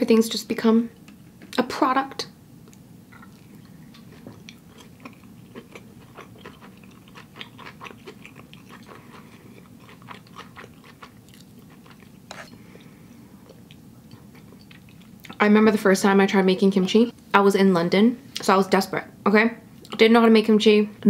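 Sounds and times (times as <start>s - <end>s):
person chewing food: 2.6s - 15.4s.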